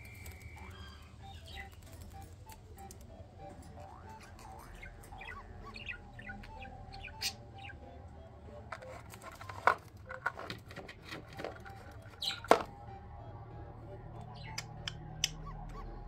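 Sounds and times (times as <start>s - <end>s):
budgerigar chirping: 0.0s - 2.2s, 3.7s - 8.0s, 11.9s - 12.7s
plastic mirror toy clacking: 8.6s - 12.8s.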